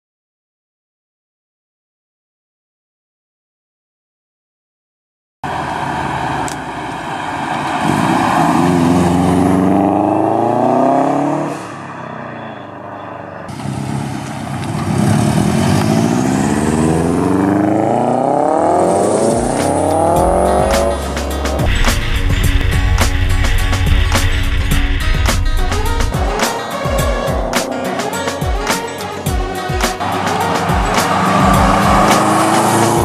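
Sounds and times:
car engine accelerating hard: 0:05.4 - 0:33.0
music: 0:18.8 - 0:33.0.

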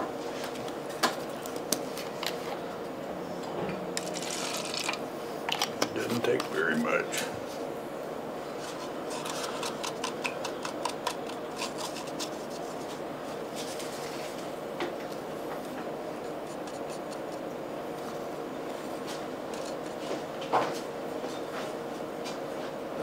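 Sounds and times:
faint steady hum: 0:00.0 - 0:23.0
paintbrush clicking and rubbing in cup: 0:16.4 - 0:17.4.

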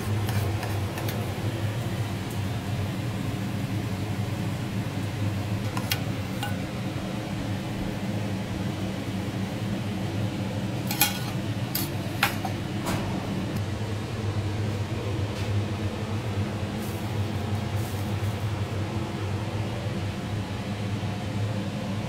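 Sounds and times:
steady low hum: 0:00.0 - 0:22.0
metal spoon clinking on saucepan: 0:10.9 - 0:12.6.

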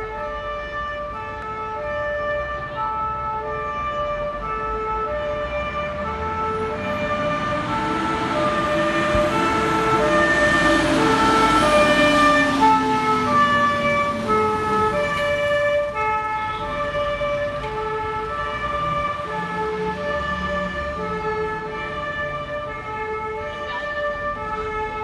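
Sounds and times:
fire engine siren stepped tones: 0:00.0 - 0:25.0
lower sliding siren tone: 0:05.0 - 0:16.4.

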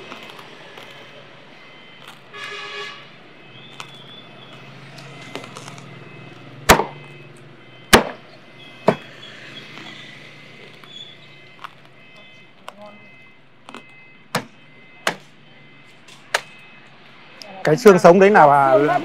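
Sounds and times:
street traffic hum: 0:00.0 - 0:19.0
cleaver chopping on wooden block: 0:06.7 - 0:07.0, 0:07.9 - 0:08.2, 0:08.8 - 0:09.1, 0:13.7 - 0:15.3.

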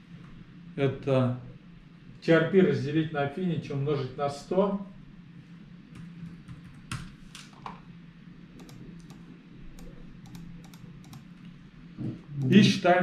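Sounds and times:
faint low hum: 0:00.0 - 0:13.0
laptop keyboard typing: 0:06.0 - 0:07.8, 0:08.6 - 0:11.5.

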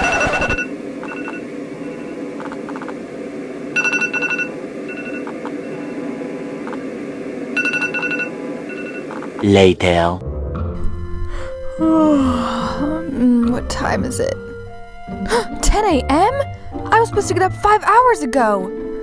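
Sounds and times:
phone alarm beeps: 0:00.0 - 0:02.2, 0:03.8 - 0:06.0, 0:07.6 - 0:09.2.

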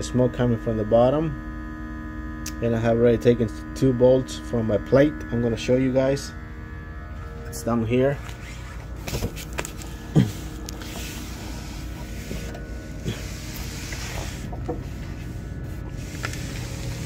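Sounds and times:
smoke machine pump hum: 0:00.0 - 0:17.0.

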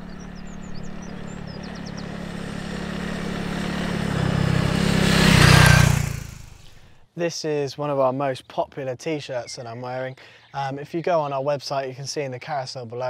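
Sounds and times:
bird chirps: 0:00.0 - 0:03.8
motorcycle engine approaching: 0:00.0 - 0:07.0.

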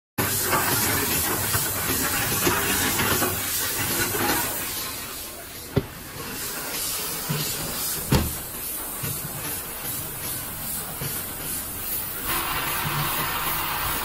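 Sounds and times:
bottle machine hissing: 0:00.2 - 0:14.0.

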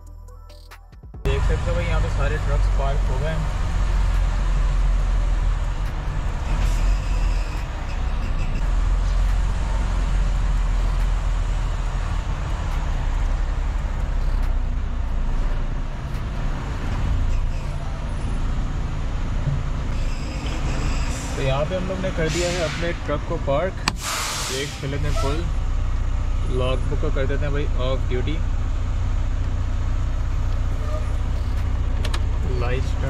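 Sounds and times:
truck diesel engine rumbling: 0:01.2 - 0:33.0.

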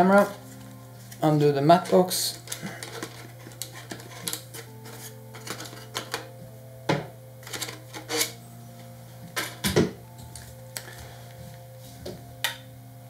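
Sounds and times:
plastic and metal parts clattering: 0:01.7 - 0:06.3, 0:07.4 - 0:08.4.

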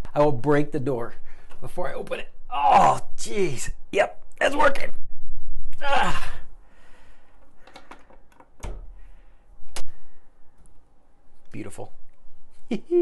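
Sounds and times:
man groaning with effort: 0:05.8 - 0:06.5
door thunk: 0:07.8 - 0:09.0.

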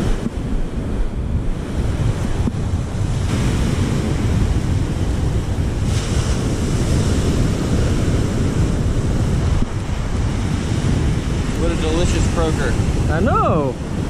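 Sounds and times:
surf breaking on beach: 0:00.0 - 0:14.0
wind buffeting microphone: 0:00.0 - 0:14.0.

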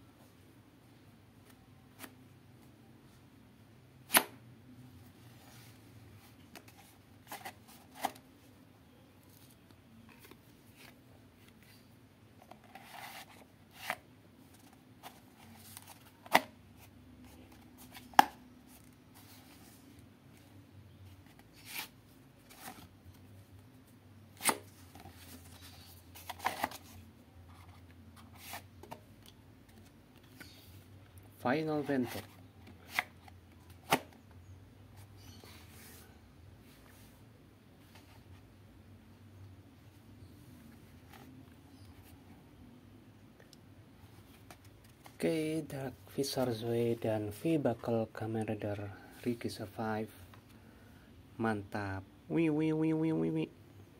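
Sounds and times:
soft rustles and scrapes: 0:05.0 - 0:08.5, 0:09.2 - 0:24.0, 0:24.6 - 0:29.0, 0:31.5 - 0:33.3, 0:34.9 - 0:38.6.

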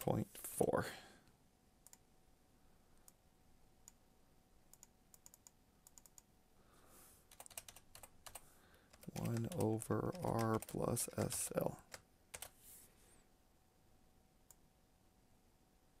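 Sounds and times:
mouse clicks: 0:04.7 - 0:06.3
keyboard keystrokes: 0:07.3 - 0:12.5.

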